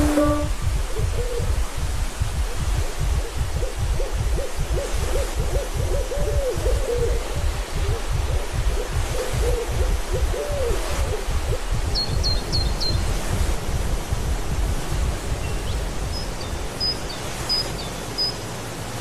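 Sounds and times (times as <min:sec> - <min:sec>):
owl-like hooting: 0:00.0 - 0:01.5
steady low rumble: 0:00.0 - 0:19.0.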